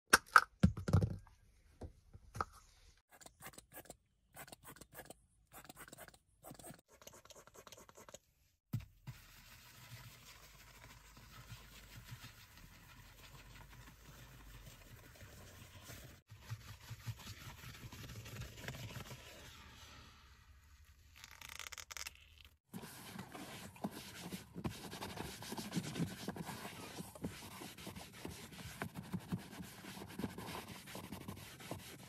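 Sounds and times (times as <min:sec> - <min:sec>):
brush scrubbing leather: 0:22.8 - 0:32.0.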